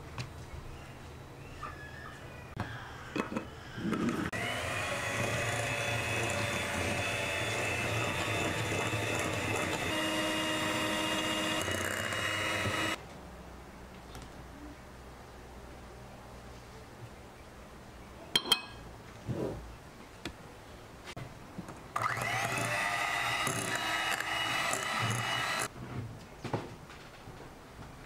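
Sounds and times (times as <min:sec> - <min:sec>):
electric hand mixer whining: 0:04.0 - 0:13.0, 0:21.9 - 0:25.7
knocks and clinks: 0:18.4 - 0:18.8.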